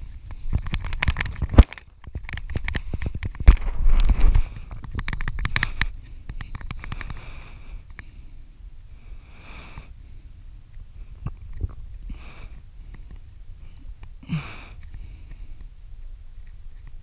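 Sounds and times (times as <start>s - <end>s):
fly reel clicking: 0.3s - 3.2s, 4.8s - 7.4s
heavy breaths: 5.5s - 11.3s, 12.1s - 15.7s.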